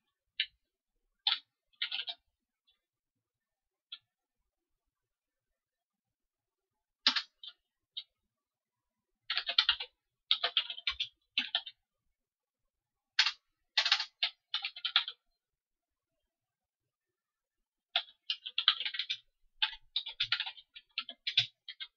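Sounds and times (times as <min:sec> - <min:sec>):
computer keyboard typing: 0:01.2 - 0:02.3, 0:07.0 - 0:07.6, 0:09.3 - 0:11.8, 0:13.2 - 0:15.2, 0:17.9 - 0:21.9.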